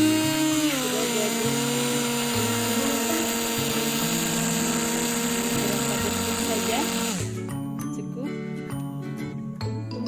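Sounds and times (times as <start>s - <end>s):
hand blender motor whine: 0.0s - 7.5s.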